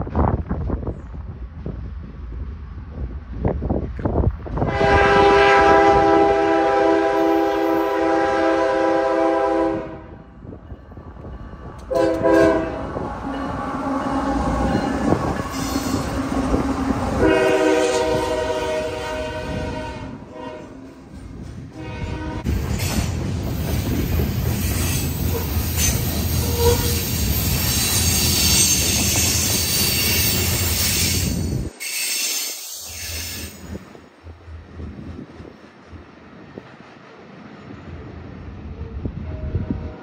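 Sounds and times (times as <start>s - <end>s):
locomotive air horn blasts: 4.6s - 10.2s, 11.9s - 20.8s, 21.8s - 22.5s, 25.3s - 27.3s
train wheels clattering on rails: 22.4s - 38.5s.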